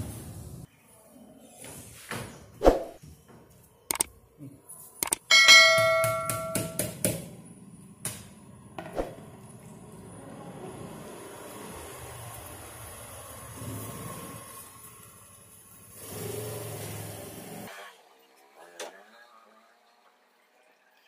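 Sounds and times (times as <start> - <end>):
bright bell-like ding: 5.3 - 6.8.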